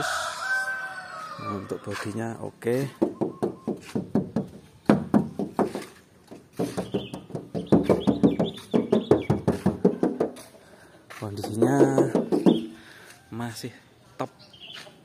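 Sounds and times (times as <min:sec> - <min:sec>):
hand tapping on metal panels: 0:02.9 - 0:10.5, 0:11.3 - 0:12.8.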